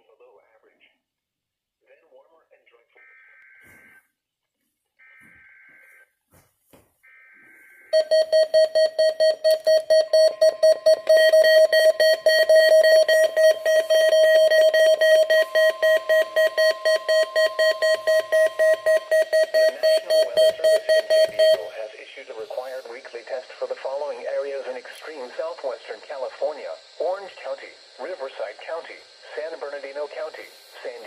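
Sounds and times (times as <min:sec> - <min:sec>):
rapid pulsing alarm beeps: 0:07.0 - 0:31.0.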